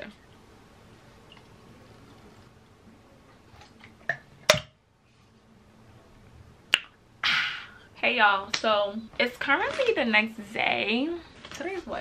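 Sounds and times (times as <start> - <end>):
sharp snap: 6.7 - 7.0.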